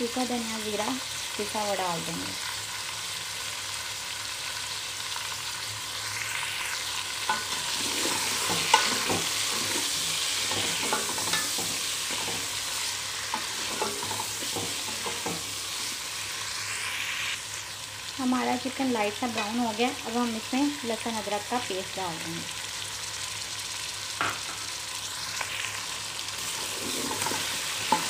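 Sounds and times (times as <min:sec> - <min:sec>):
chicken sizzling in hot oil: 0:00.0 - 0:28.0
wooden spoon scraping pot: 0:26.4 - 0:28.0.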